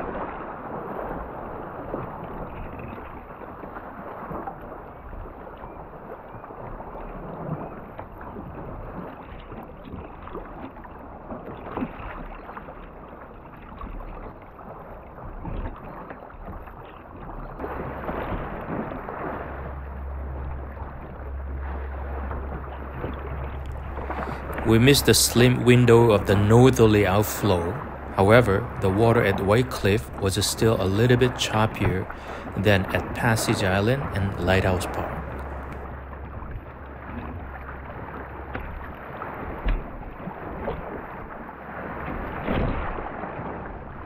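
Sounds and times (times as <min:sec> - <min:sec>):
paddle splashes: 0:00.0 - 0:44.0
water sloshing around boat: 0:00.0 - 0:44.0
low rumble: 0:17.9 - 0:39.1.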